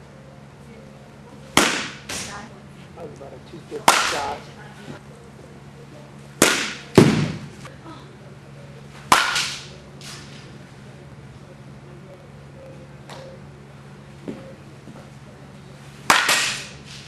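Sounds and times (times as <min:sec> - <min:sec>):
bat hitting softball: 0:01.5 - 0:02.3, 0:03.8 - 0:04.4, 0:06.4 - 0:07.5, 0:09.0 - 0:10.4, 0:16.0 - 0:17.0.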